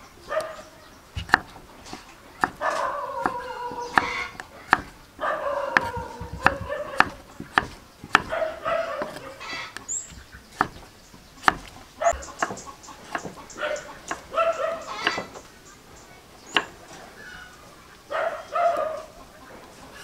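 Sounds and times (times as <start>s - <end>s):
knife chopping on wooden board: 1.2s - 5.0s, 5.6s - 13.4s, 14.0s - 14.3s, 15.0s - 15.4s, 16.5s - 16.8s
animal drawn-out calls: 2.6s - 4.4s, 8.3s - 10.0s.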